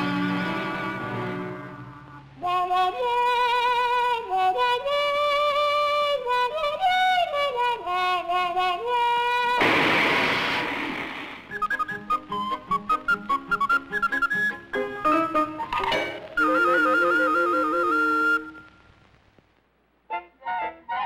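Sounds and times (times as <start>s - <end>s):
brass horn slow melody: 0.0s - 2.2s
firework rocket whoosh: 9.6s - 11.5s.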